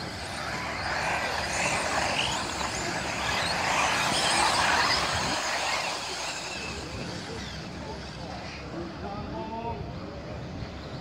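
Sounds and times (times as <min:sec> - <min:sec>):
rc buggy motors whining: 0:00.0 - 0:09.2.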